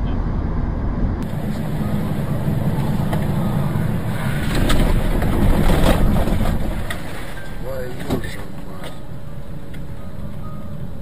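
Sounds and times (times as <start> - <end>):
vehicle road and engine noise: 0.0 - 11.0
vehicle driving on wet road: 1.2 - 10.0.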